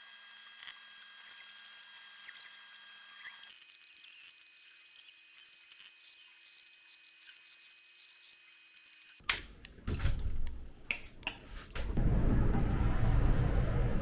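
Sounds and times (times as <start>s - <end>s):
loud rushing noise: 12.0s - 14.0s.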